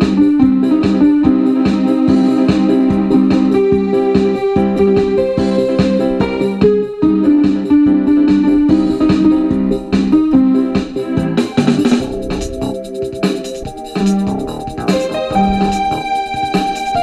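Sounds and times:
electro-trance music: 0:08.5 - 0:17.0.

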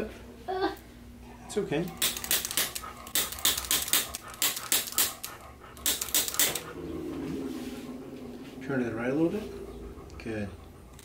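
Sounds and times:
rapid sharp instrument clicks: 0:02.0 - 0:06.6.

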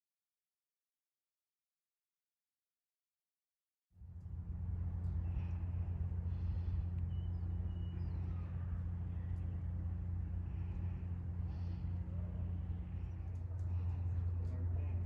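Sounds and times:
hum: 0:04.0 - 0:15.0
steady low rumble: 0:04.0 - 0:15.0
faint high chirps: 0:06.5 - 0:11.1.

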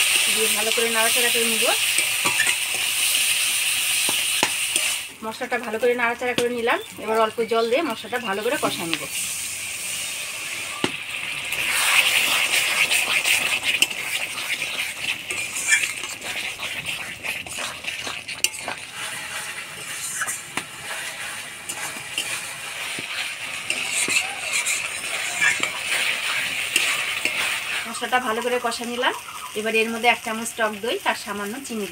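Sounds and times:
spatula scraping a metal pan: 0:00.0 - 0:05.1, 0:11.6 - 0:28.6
spice paste sizzling in a pan: 0:00.0 - 0:31.9.

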